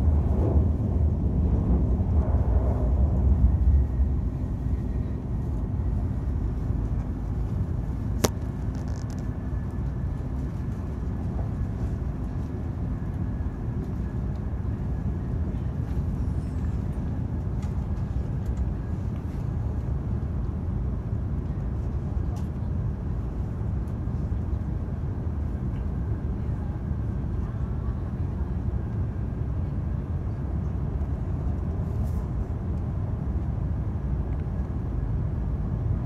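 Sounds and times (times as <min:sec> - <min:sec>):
train rumble inside cabin: 0:00.0 - 0:36.0.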